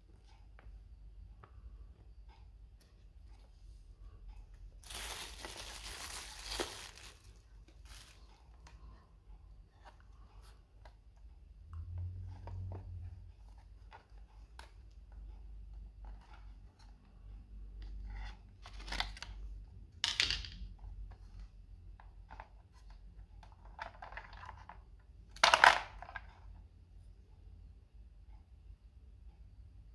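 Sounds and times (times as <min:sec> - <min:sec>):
plastic case clicks and rattles: 0:25.3 - 0:26.3.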